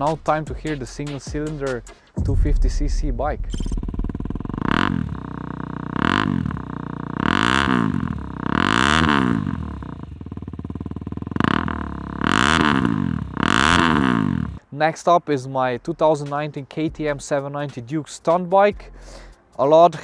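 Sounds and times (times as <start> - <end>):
motorcycle engine revving: 3.5 - 14.6.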